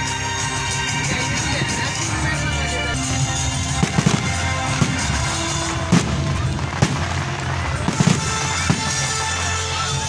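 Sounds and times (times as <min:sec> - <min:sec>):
music: 0:00.0 - 0:10.0
fireworks bursting: 0:03.0 - 0:10.0.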